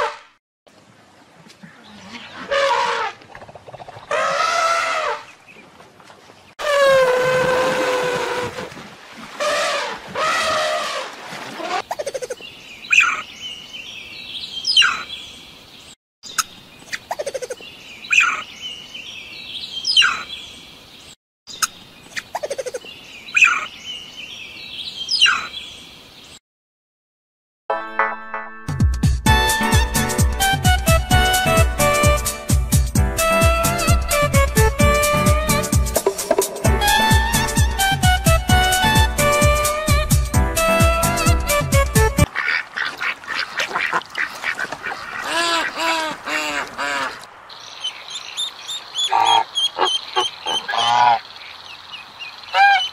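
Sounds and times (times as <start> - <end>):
elephant calves calling: 49.0 - 51.2.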